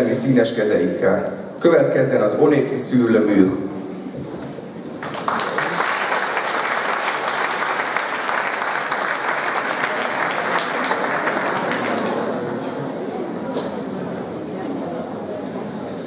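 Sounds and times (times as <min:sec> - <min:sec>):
audience clapping: 0:05.0 - 0:12.5.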